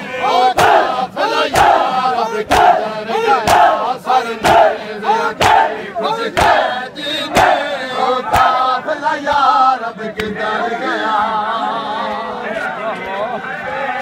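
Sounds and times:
crowd of men chanting: 0:00.0 - 0:14.0
hands slapping chests: 0:08.3 - 0:08.6.

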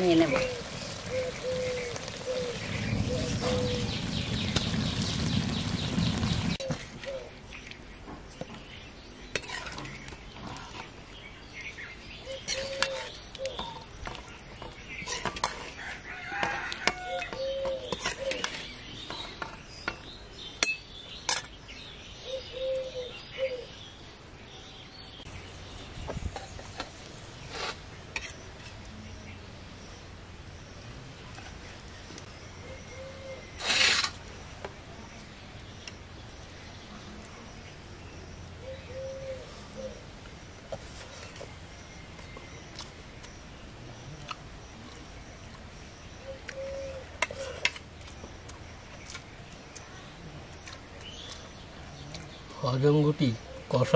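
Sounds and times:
dove cooing: 0:00.3 - 0:04.0, 0:06.6 - 0:07.4, 0:12.2 - 0:13.9, 0:15.8 - 0:18.8, 0:22.2 - 0:23.8, 0:38.6 - 0:40.0, 0:46.2 - 0:47.6
high pulsed chirping: 0:03.0 - 0:16.8, 0:17.4 - 0:25.4
rooster crowing: 0:15.7 - 0:17.8.

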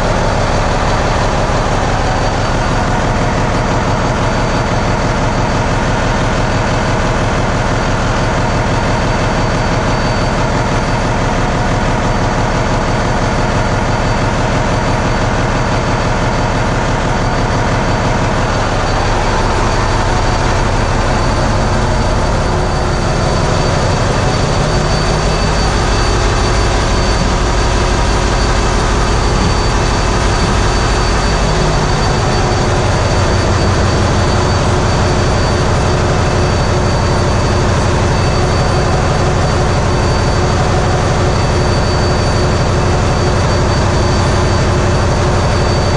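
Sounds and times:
diesel generators droning: 0:00.0 - 0:45.9
thin high tone: 0:18.0 - 0:45.9.

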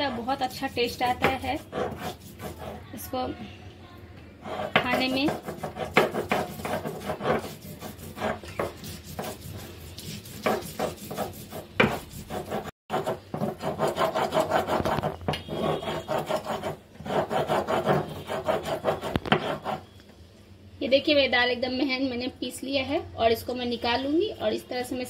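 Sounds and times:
stone roller rasping on grinding stone: 0:00.0 - 0:03.0, 0:04.4 - 0:19.9.

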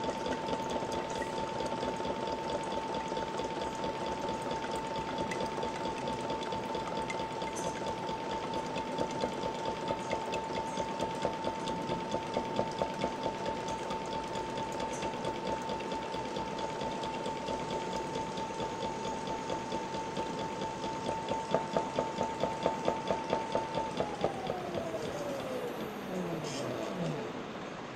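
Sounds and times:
electric pump motor whining: 0:20.4 - 0:27.9.

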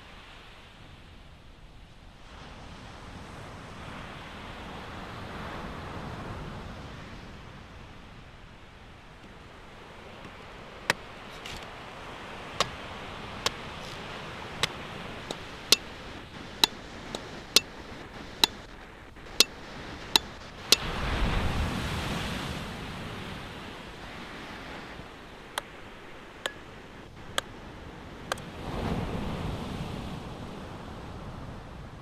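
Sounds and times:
surf washing: 0:01.9 - 0:32.0
cleaver chopping coconut husk: 0:12.4 - 0:16.0.

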